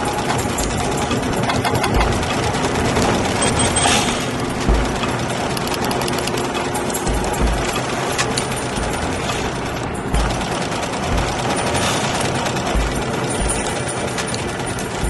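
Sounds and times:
mechanical rattling: 0:00.0 - 0:15.0
deep thuds: 0:03.9 - 0:05.5, 0:06.9 - 0:14.0.

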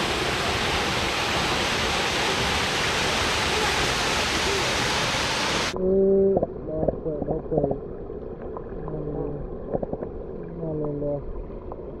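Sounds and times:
waterfall splashing into pool: 0:00.0 - 0:05.8
underwater clicks and taps: 0:09.7 - 0:10.1.

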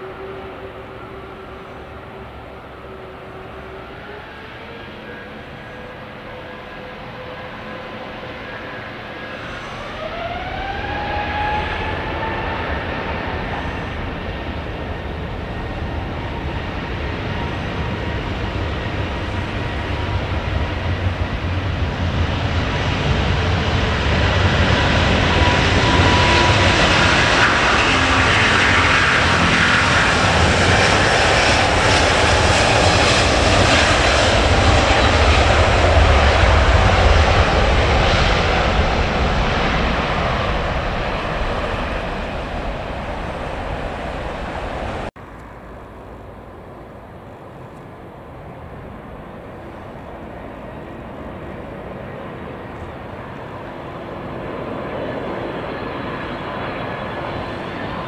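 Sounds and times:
jet engines spooling up: 0:00.0 - 0:45.1
jet roar: 0:00.0 - 0:58.0.

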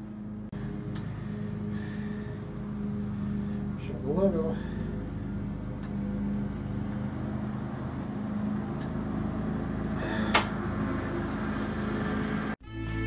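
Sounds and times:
low electrical hum: 0:00.0 - 0:10.2.

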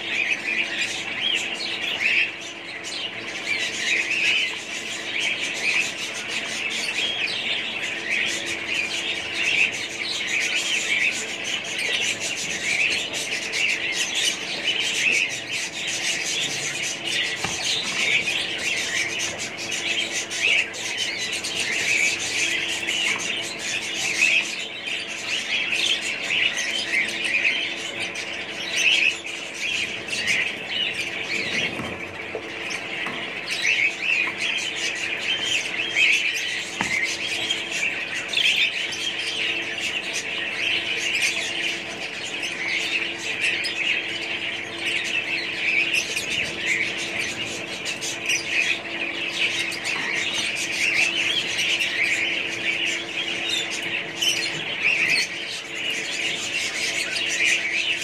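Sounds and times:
caged birds chirping and squawking: 0:00.0 - 0:58.0
steady low hum: 0:00.0 - 0:58.0.

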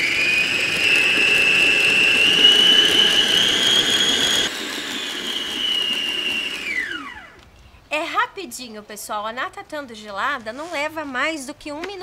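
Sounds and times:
electric mixer whining: 0:00.0 - 0:07.5.

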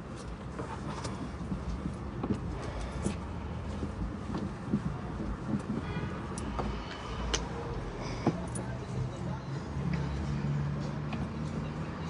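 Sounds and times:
squeegee scraping windshield: 0:00.0 - 0:07.2
idling car hum: 0:00.0 - 0:12.0.

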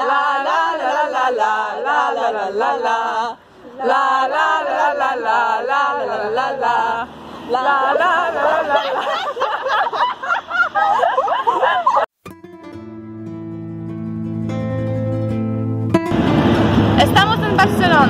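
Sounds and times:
women singing together: 0:00.0 - 0:10.1
women laughing: 0:07.8 - 0:12.1
acoustic guitar music: 0:12.2 - 0:18.0.

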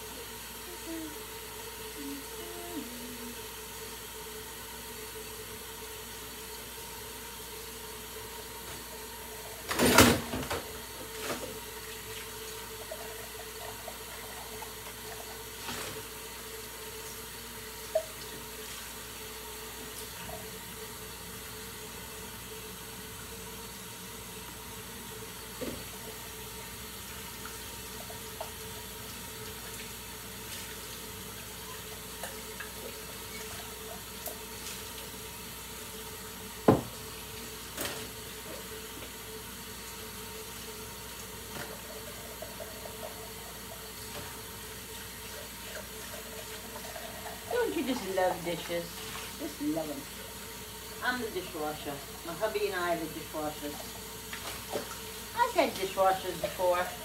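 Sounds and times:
faucet running into metal sink: 0:24.1 - 0:57.0.

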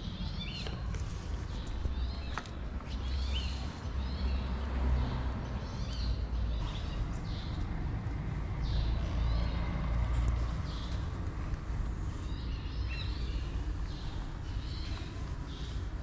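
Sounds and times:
small birds chirping: 0:00.0 - 0:16.0
steady low rumble: 0:06.6 - 0:16.0.

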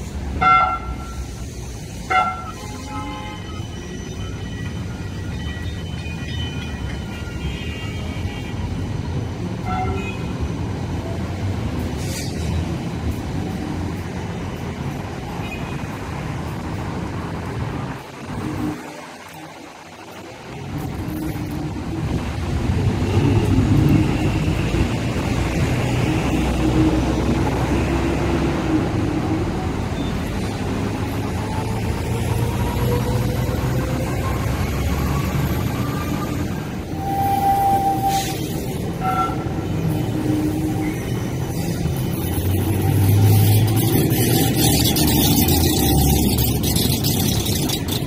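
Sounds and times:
road traffic: 0:00.0 - 0:48.0
tram rumbling: 0:00.0 - 0:48.0.

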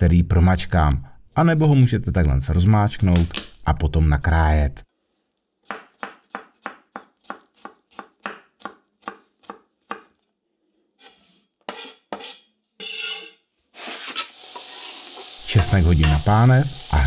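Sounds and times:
knife chopping on cutting board: 0:05.7 - 0:10.1
knife blade scraping board: 0:11.0 - 0:14.3.

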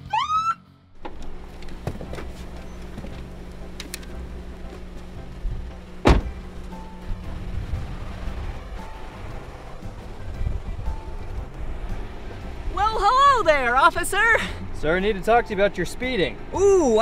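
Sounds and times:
police siren whoop: 0:00.0 - 0:00.6
car engine humming: 0:00.0 - 0:17.0
car door slamming: 0:01.0 - 0:04.1, 0:04.7 - 0:06.8.

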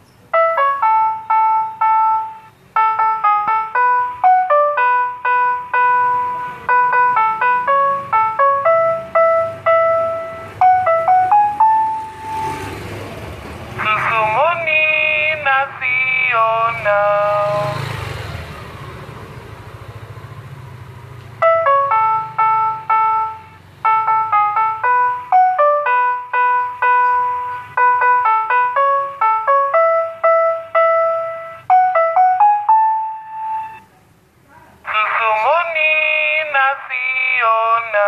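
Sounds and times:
electronic jingle tune: 0:00.4 - 0:12.8, 0:21.4 - 0:33.9
sung voice call: 0:13.8 - 0:17.8, 0:34.5 - 0:38.0.

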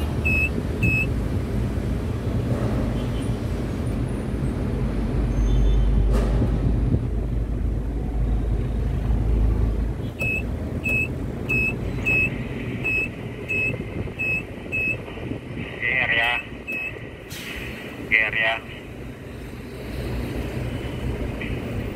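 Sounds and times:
high-pitched electronic warning beep: 0:00.2 - 0:01.1, 0:10.2 - 0:15.0.

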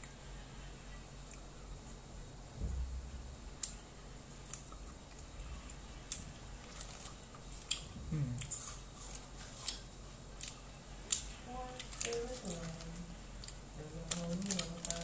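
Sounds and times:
person humming: 0:08.0 - 0:08.5.

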